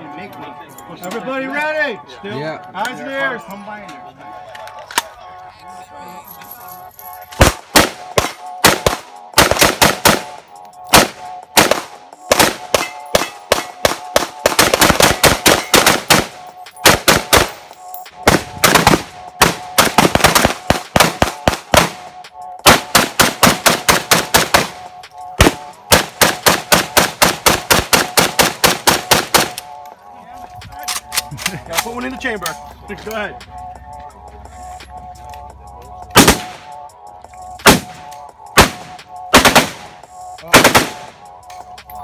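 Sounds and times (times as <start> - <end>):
rifles firing: 7.4 - 17.6, 18.3 - 24.8, 25.4 - 29.7, 36.2 - 36.6, 37.6 - 38.0, 38.6 - 39.9, 40.5 - 41.2.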